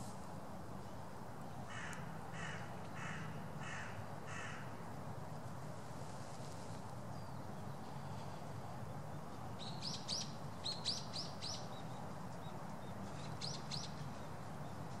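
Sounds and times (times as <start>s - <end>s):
small bird chirping: 9.6s - 14.3s.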